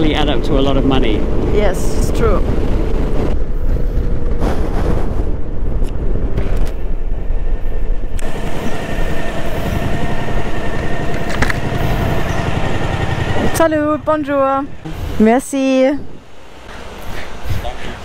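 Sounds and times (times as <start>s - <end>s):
wind rumble on microphone: 0.0s - 18.0s
motorcycle engine running: 8.2s - 15.5s.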